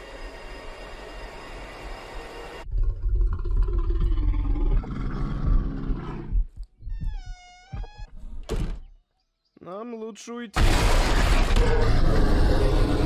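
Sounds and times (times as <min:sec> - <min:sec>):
bear growling: 0:02.7 - 0:06.5.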